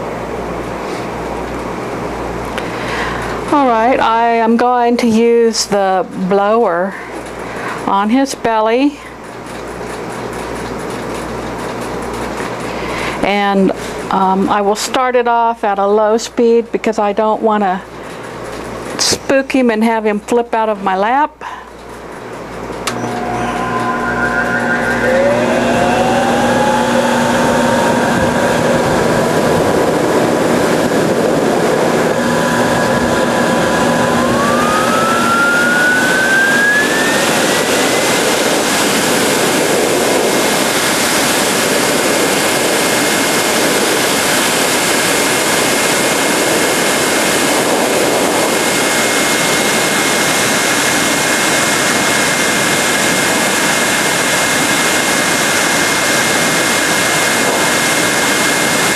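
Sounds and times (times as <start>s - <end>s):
grooming blower running: 22.1s - 58.9s.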